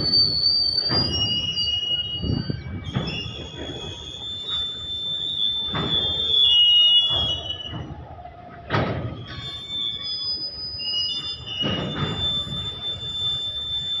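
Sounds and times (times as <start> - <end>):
freight wagons rolling: 0.0 - 14.0
train wheels squealing on rails: 0.0 - 14.0
dull clunks from wagons: 5.7 - 6.3.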